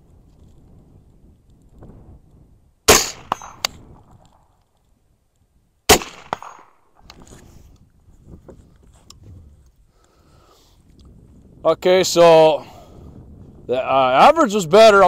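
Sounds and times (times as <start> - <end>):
wind on microphone: 0.0 - 4.6, 7.0 - 15.0
rifle shots: 2.9 - 4.4, 5.9 - 6.9.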